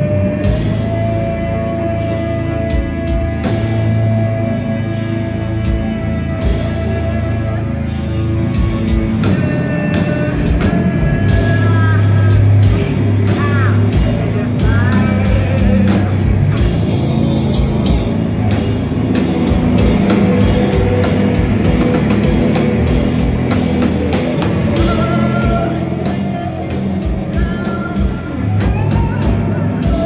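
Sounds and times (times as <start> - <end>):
distorted guitars: 0.0 - 30.0
pounding drum kit: 0.0 - 30.0.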